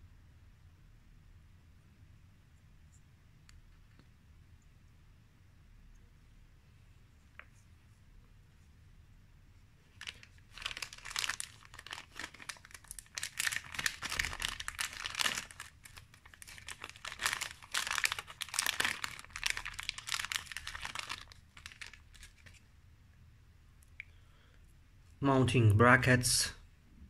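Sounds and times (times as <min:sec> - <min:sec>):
plastic bag crinkling: 0:09.8 - 0:22.6.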